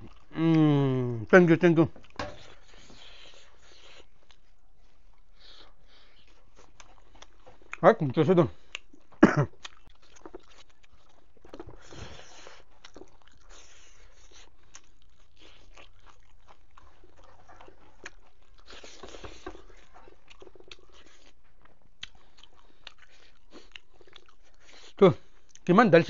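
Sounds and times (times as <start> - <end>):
person chewing food: 0.0 - 25.7.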